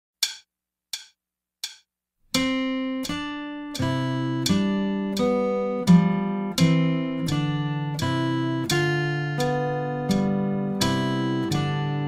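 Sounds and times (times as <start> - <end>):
count-in click: 0.2 - 6.0
acoustic guitar plucking: 2.3 - 12.0.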